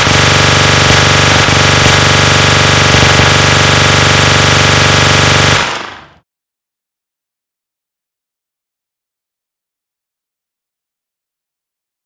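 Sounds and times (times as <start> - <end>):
rapid-fire machine-gun: 0.0 - 6.2.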